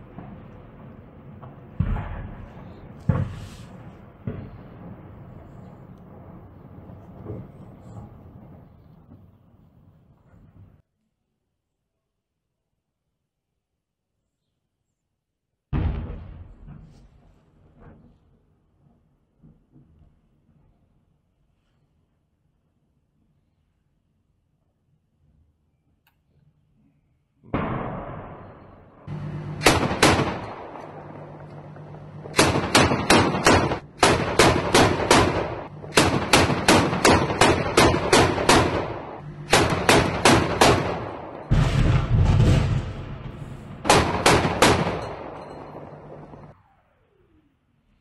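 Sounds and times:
heavy bang: 15.8 - 17.1, 27.6 - 46.5
steady low hum: 27.6 - 48.0
automatic gunfire bursts: 29.6 - 31.4, 32.1 - 41.5, 43.8 - 46.4
loud low rumble: 37.4 - 46.5.

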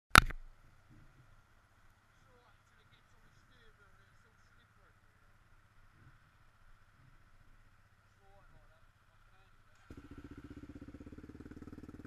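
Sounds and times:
sharp knock: 0.1 - 0.4
faint low rumble: 0.3 - 12.0.

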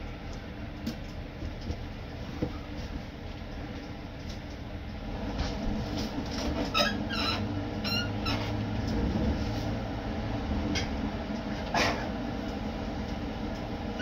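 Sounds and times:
short high-pitched squeaks: 6.7 - 8.5.

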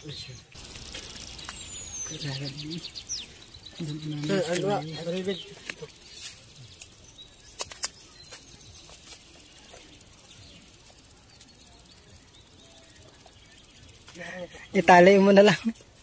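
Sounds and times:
faint bird chirps: 0.0 - 14.9.

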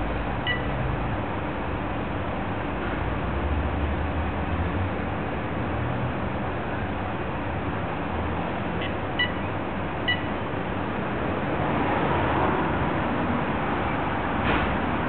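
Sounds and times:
short electronic beeps: 0.5 - 0.7, 8.8 - 9.5, 10.1 - 10.4.

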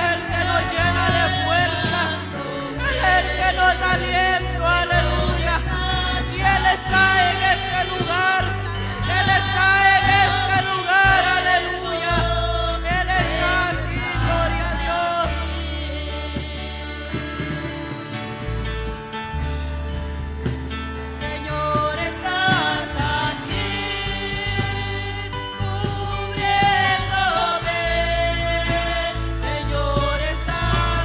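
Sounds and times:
voices singing gospel: 0.0 - 19.1, 20.0 - 31.0
low bass notes: 0.0 - 31.0.

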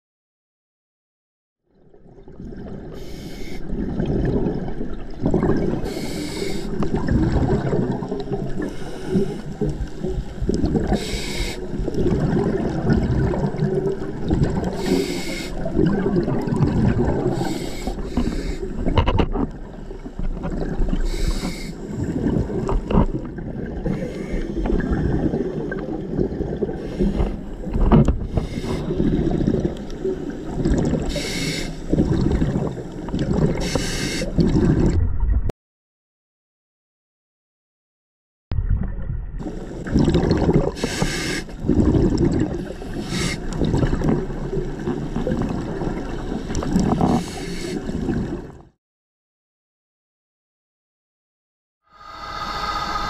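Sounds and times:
scuba regulator hiss: 3.0 - 3.6, 5.9 - 6.8, 10.9 - 11.7, 14.8 - 15.6, 17.3 - 18.7, 21.1 - 21.8, 28.3 - 29.0, 31.1 - 31.8, 33.6 - 34.4, 40.8 - 41.5, 42.8 - 43.5, 47.1 - 47.8, 51.9 - 53.0.

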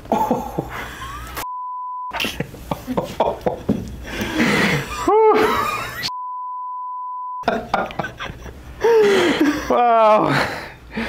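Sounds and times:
censor bleep: 1.4 - 2.1, 6.1 - 7.4.

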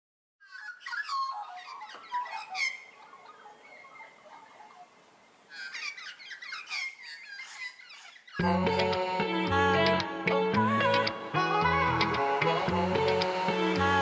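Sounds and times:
birds chirping: 0.4 - 14.0
guitar music: 8.4 - 14.0.

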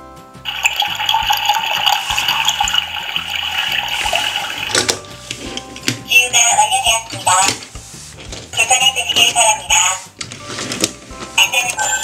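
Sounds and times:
background music with steady beat: 0.0 - 12.0
rushing water-like hiss: 0.5 - 5.5.

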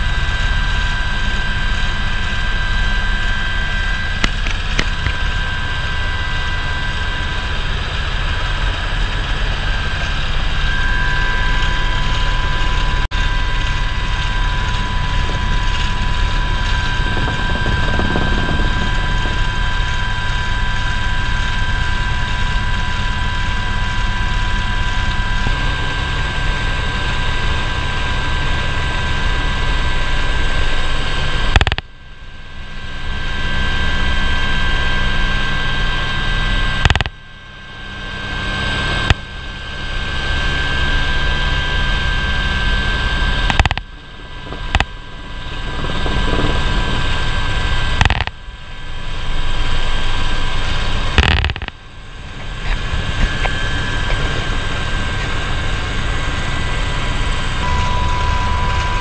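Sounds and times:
helicopter turbine whine: 0.0 - 59.0
rotor and engine noise: 0.0 - 59.0
sharp click: 31.6 - 31.8, 36.8 - 37.1, 43.5 - 43.8, 48.0 - 48.3, 51.2 - 51.7.

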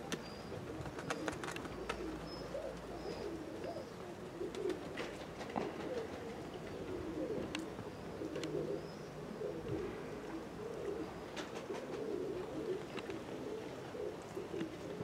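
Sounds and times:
pigeons cooing: 0.0 - 15.0.

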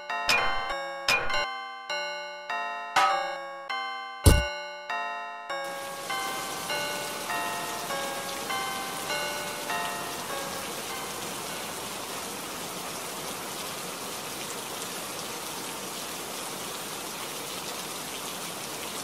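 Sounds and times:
heavy rain hissing: 5.7 - 19.0.

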